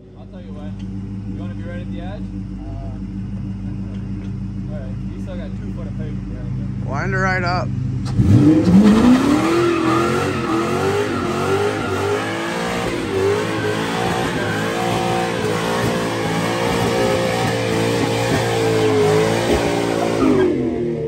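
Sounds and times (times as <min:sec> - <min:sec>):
car engine at high revs: 0:00.0 - 0:21.0
tyres spinning on pavement: 0:09.3 - 0:20.0.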